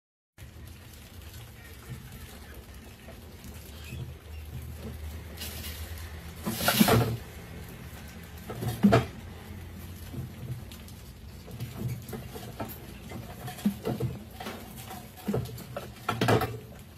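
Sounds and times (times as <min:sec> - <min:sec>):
mice scrabbling in glass tank: 0:00.4 - 0:16.9
wooden platform clattering: 0:11.4 - 0:16.9.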